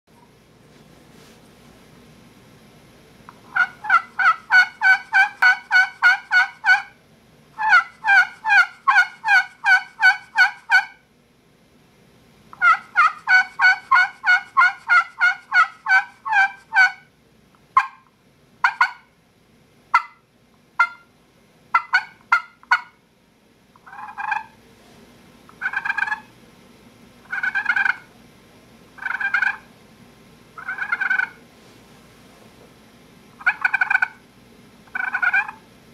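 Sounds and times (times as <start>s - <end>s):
turkey call purrs: 3.3s - 7.0s, 7.6s - 11.0s, 12.5s - 17.1s, 17.8s - 19.1s, 20.8s - 21.1s, 21.7s - 23.0s, 23.8s - 24.6s, 25.5s - 26.3s, 27.2s - 28.1s, 29.0s - 29.7s, 30.6s - 31.4s, 33.3s - 34.2s, 34.8s - 35.7s
turkey call clucks: 3.4s - 7.0s, 7.6s - 11.0s, 12.5s - 17.1s, 17.8s - 19.1s, 19.9s - 20.2s, 20.8s - 21.1s, 21.7s - 23.0s, 23.8s - 24.6s, 25.5s - 26.3s, 27.2s - 28.1s, 29.0s - 29.7s, 30.6s - 31.4s, 33.4s - 34.2s, 34.9s - 35.7s
turkey call yelps: 3.4s - 7.0s, 7.6s - 11.0s, 12.6s - 17.1s, 17.8s - 19.1s, 19.9s - 20.2s, 20.8s - 21.1s, 21.7s - 23.0s, 23.8s - 24.6s, 25.5s - 26.3s, 27.2s - 28.1s, 29.0s - 29.7s, 30.6s - 31.4s, 33.4s - 34.2s, 34.9s - 35.6s.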